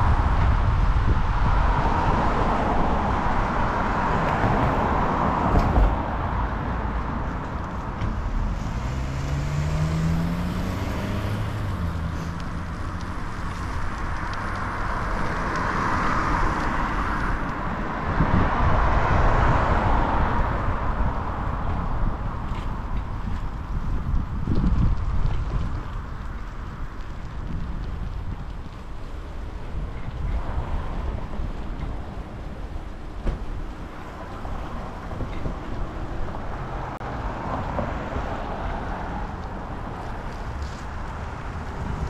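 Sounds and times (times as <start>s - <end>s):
car traffic passing: 0.0s - 42.0s
wind rumble on microphone: 0.0s - 42.0s
engine note rising: 8.4s - 12.1s.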